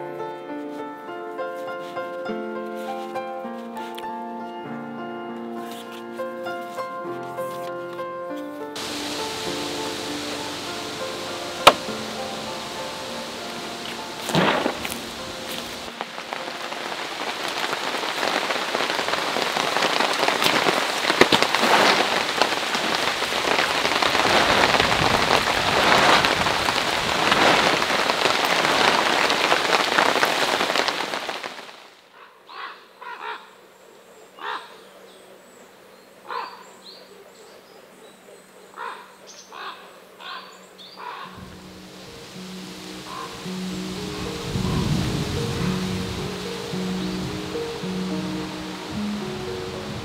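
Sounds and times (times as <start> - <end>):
heavy rain pattering: 8.8 - 32.1, 41.3 - 50.0
short bird calls: 32.1 - 33.5.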